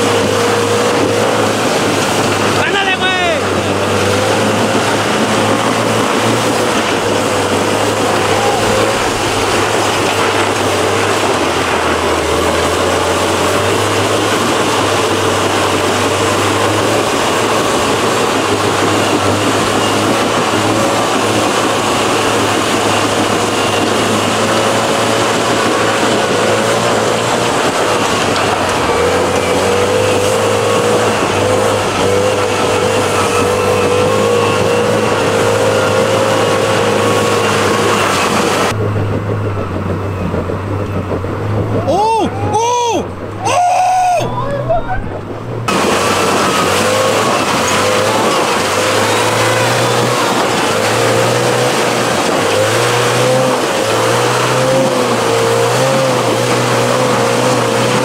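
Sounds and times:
car engine at low revs: 0:00.0 - 0:58.0.

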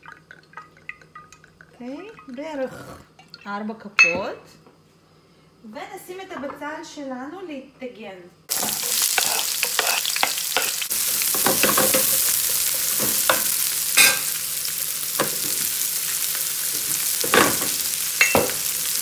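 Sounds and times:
onions sizzling in frying pan: 0:08.5 - 0:19.0
wooden spatula scraping pan: 0:08.6 - 0:10.7.

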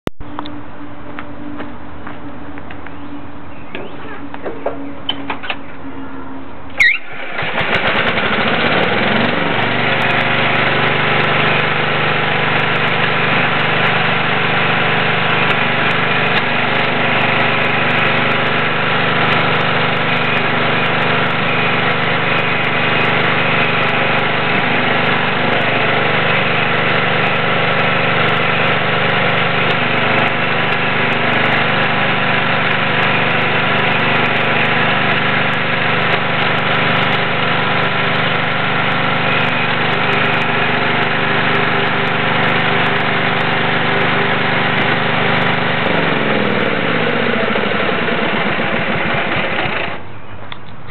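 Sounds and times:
garden tractor engine running: 0:06.7 - 0:50.9.

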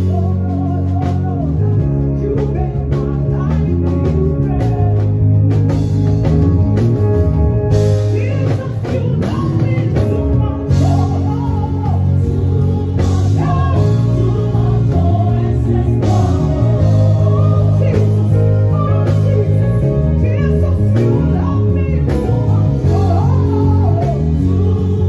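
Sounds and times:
drums and cymbals: 0:00.0 - 0:25.0
electric bass guitar: 0:00.0 - 0:25.0
voices singing: 0:08.2 - 0:25.0.

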